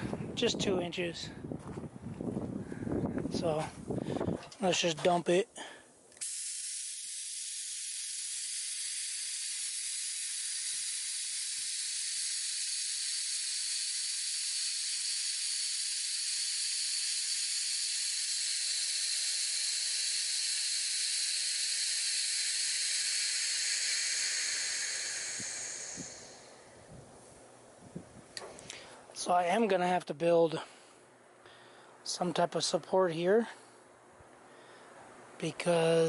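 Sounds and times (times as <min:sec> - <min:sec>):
compressed air hissing: 0:05.6 - 0:29.0.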